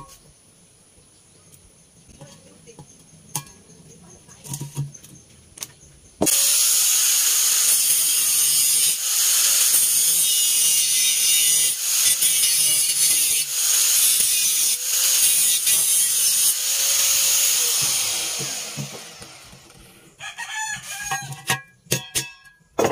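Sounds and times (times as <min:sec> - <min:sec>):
angle grinder grinding metal: 0:06.2 - 0:20.1.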